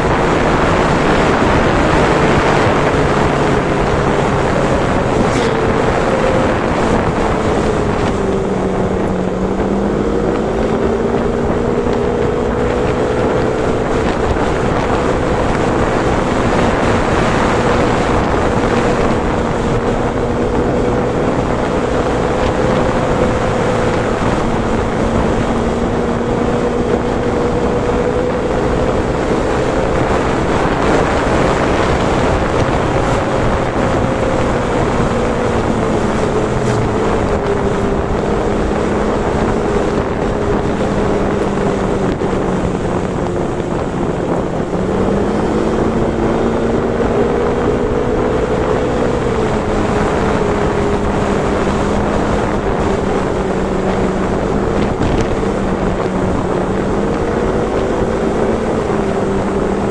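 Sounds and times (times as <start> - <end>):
vehicle engine running: 0.0 - 59.9
wind noise on microphone: 0.0 - 59.9.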